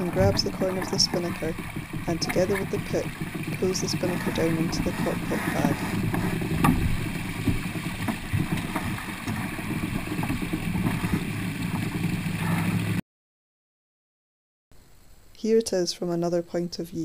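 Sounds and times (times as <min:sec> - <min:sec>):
knocks and rattles of sail handling: 0:00.0 - 0:13.0
wind and water rushing: 0:00.0 - 0:13.0.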